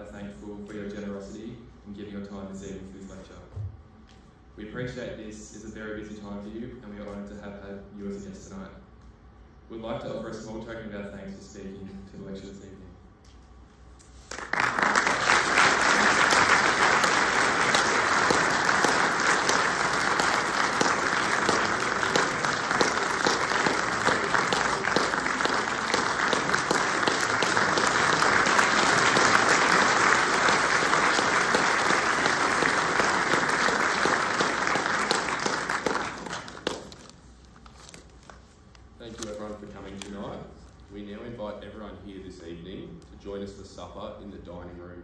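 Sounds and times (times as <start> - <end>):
audience applauding: 14.3 - 37.0.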